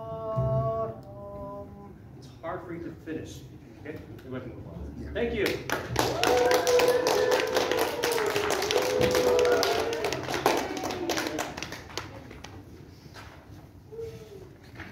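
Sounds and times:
applause: 5.4s - 12.7s.

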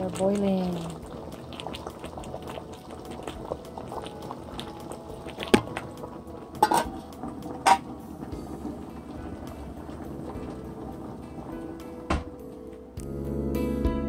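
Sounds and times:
water bubbling at a rolling boil: 0.0s - 13.0s
metal pot lid clanking: 6.6s - 8.3s.

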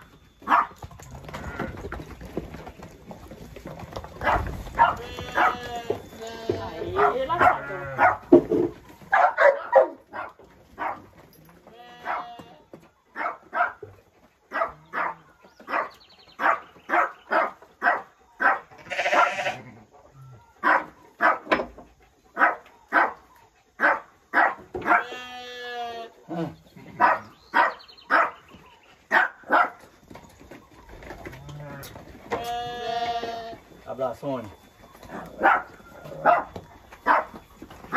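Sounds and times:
dog barking: 0.5s - 0.7s, 4.2s - 5.6s, 6.9s - 8.4s, 9.1s - 11.1s, 12.0s - 12.4s, 13.2s - 13.8s, 14.5s - 19.5s, 20.6s - 21.6s, 22.4s - 23.2s, 23.8s - 25.2s, 27.0s - 28.4s, 29.1s - 29.8s, 35.1s - 37.4s
sheep bleating: 4.8s - 8.1s, 11.7s - 12.6s, 18.8s - 19.8s, 24.9s - 26.4s, 31.6s - 33.6s.

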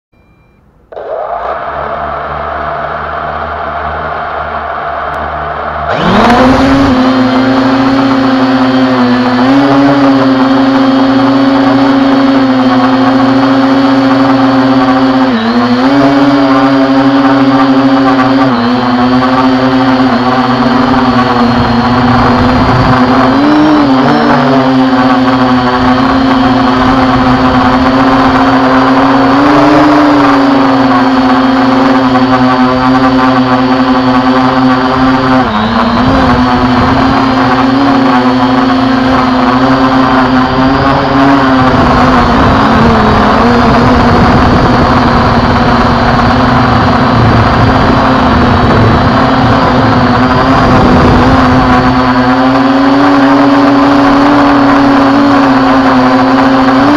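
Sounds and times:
drone propellers buzzing: 0.1s - 56.9s.

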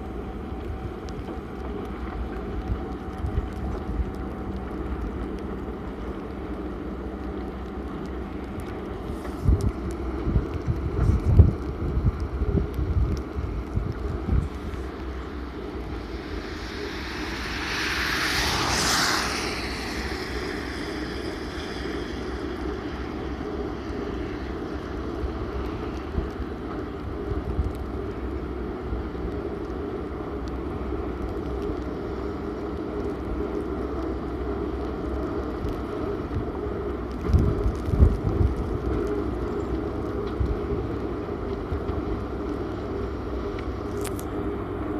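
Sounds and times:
excavator mechanical drone: 0.0s - 44.9s
low bumps: 13.7s - 22.4s
rushing noise: 14.1s - 25.9s.

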